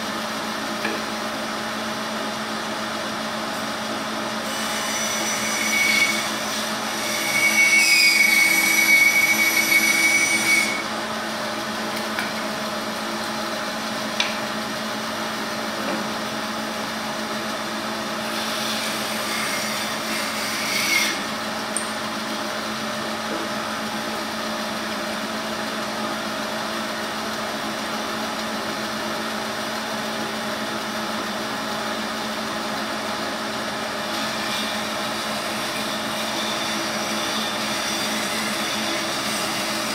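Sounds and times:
bandsaw humming: 3.5s - 11.2s, 18.1s - 24.3s, 34.1s - 39.9s
bandsaw blade cutting wood: 4.4s - 10.9s, 18.1s - 22.0s, 34.2s - 39.9s.

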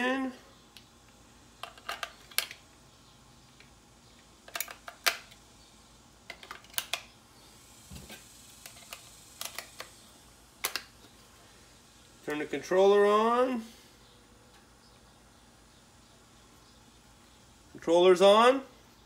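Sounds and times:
batteries clicking into compartment: 1.6s - 2.6s, 4.4s - 5.4s, 6.3s - 7.1s, 8.6s - 10.0s, 10.6s - 10.9s.

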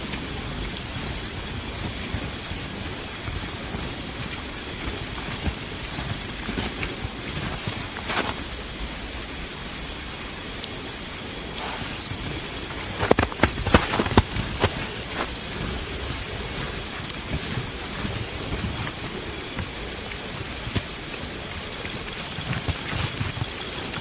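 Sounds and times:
snow crunching: 0.0s - 24.0s
steady noisy hiss: 0.0s - 24.0s
twigs snapping: 4.2s - 8.5s, 11.5s - 15.6s.

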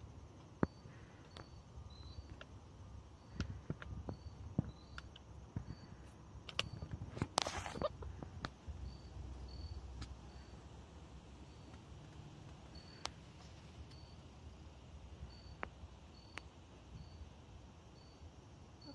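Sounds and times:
faint high chirps: 0.0s - 2.5s, 3.1s - 6.9s, 7.6s - 10.7s, 11.4s - 14.4s, 15.2s - 18.9s.

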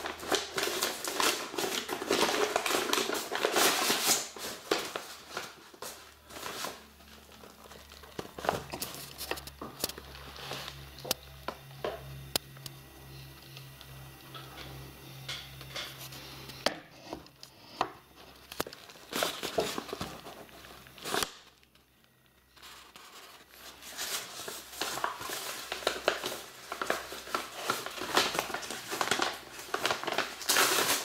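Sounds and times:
paper packaging crinkling: 0.0s - 16.6s, 17.2s - 31.0s.

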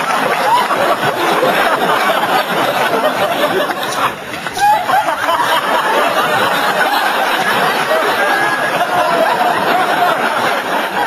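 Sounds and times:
murmur of many voices: 0.0s - 11.0s.

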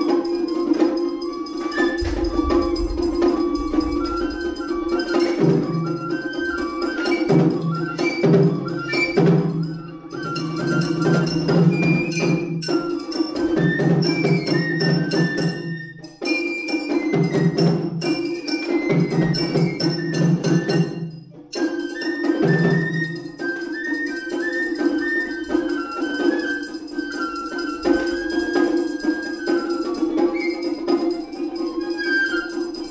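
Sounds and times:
bamboo flute melody: 0.0s - 32.9s
large barrel drum: 1.6s - 9.6s
rapid stick drum strokes: 1.7s - 7.1s.

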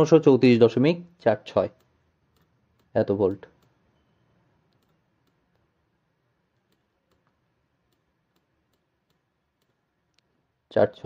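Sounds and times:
faint irregular clicks: 1.7s - 3.8s, 4.6s - 10.4s.

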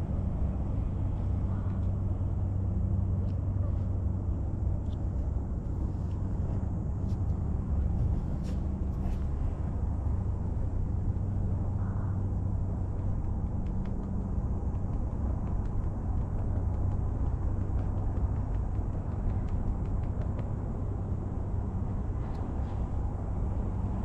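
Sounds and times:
hum: 0.0s - 24.0s
low outdoor rumble: 0.0s - 24.0s
faint ticks: 13.0s - 20.7s.

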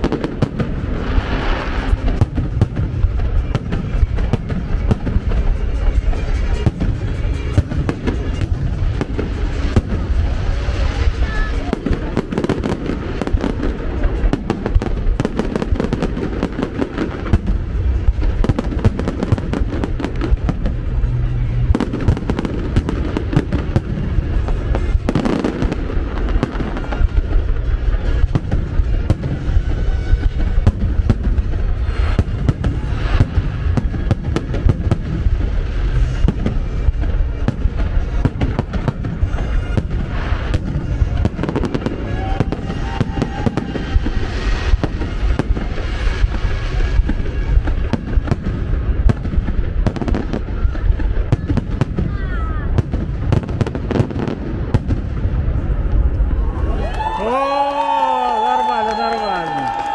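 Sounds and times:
music playing: 0.0s - 50.8s
fireworks bangs: 0.0s - 59.9s.

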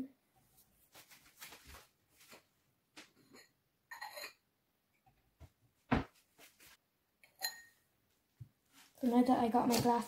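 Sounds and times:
glass clink ringing: 7.3s - 7.8s.

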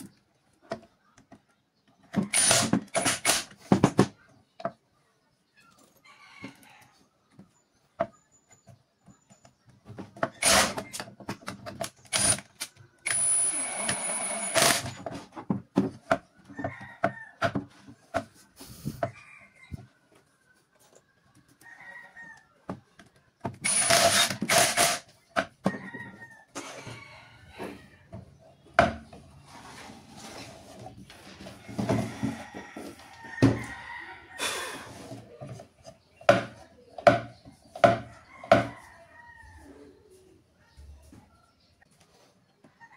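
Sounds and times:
cordless power tool running: 23.6s - 25.0s
wooden boards knocking: 36.2s - 38.7s.

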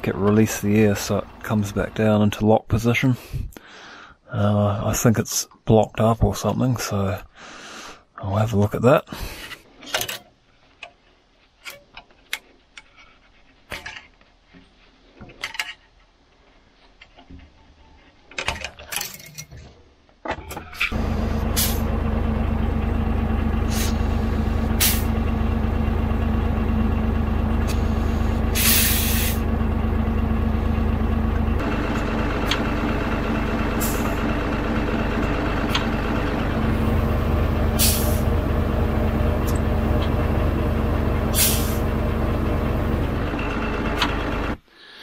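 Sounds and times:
engine running steadily: 0.0s - 2.2s, 20.9s - 44.7s
compressed air hissing: 21.3s - 21.8s, 23.6s - 25.1s, 27.7s - 29.4s, 37.8s - 38.3s, 41.3s - 41.8s.

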